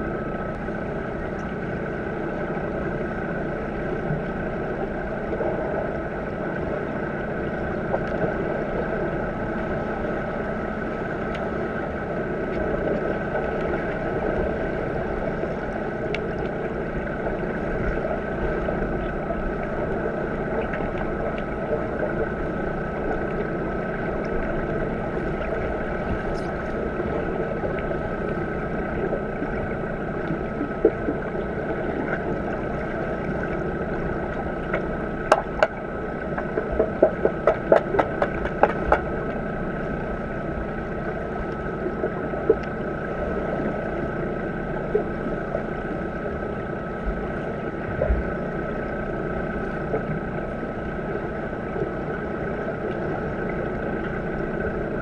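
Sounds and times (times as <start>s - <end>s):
constant hum: 0.0s - 55.0s
underwater rushing noise: 0.0s - 55.0s
sharp clicks and knocks: 34.7s - 39.1s.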